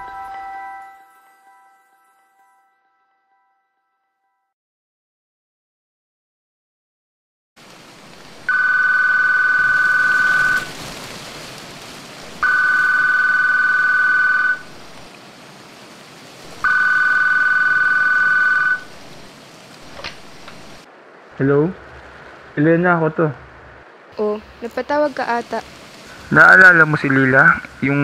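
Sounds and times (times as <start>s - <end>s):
low hiss: 7.6s - 28.0s
telephone ringing: 8.5s - 10.7s, 12.4s - 14.7s, 16.6s - 18.9s.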